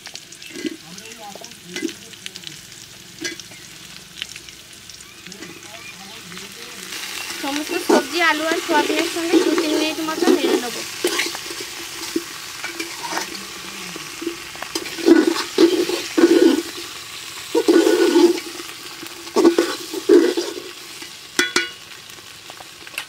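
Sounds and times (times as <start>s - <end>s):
frying oil sizzling: 0.0s - 23.0s
metal spatula scraping pot: 0.4s - 0.9s, 3.2s - 3.6s, 6.8s - 21.8s.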